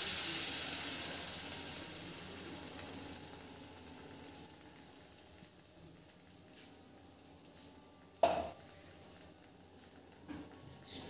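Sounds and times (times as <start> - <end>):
puree sizzling in hot pan: 0.0 - 11.0.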